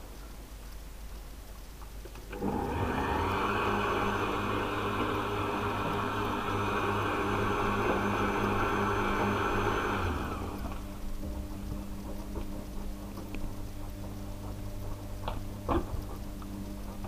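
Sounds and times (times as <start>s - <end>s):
blender motor whirring: 2.3s - 12.2s.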